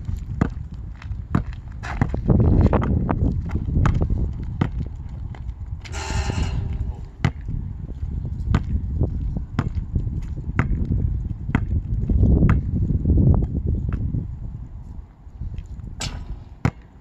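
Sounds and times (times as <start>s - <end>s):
ball bouncing on asphalt: 0.0s - 14.2s, 15.6s - 17.0s
basketball hitting metal rim: 5.9s - 7.5s, 16.0s - 16.9s.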